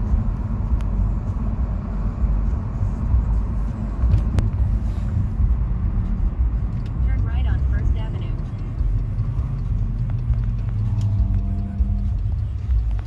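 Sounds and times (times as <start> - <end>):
car cabin road and engine rumble: 0.0 - 13.0.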